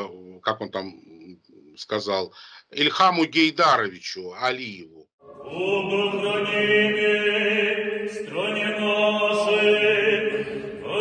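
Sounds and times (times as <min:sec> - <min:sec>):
voices chanting long notes: 0:05.2 - 0:11.0.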